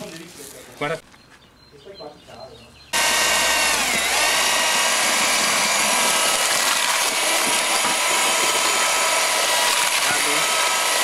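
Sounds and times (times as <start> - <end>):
drill motor whine: 3.0 - 11.0
mortar churning: 3.0 - 11.0.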